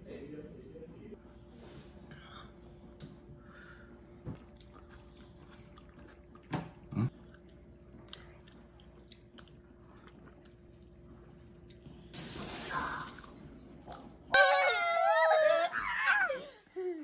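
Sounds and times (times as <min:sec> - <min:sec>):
soft chewing: 0:04.3 - 0:12.1.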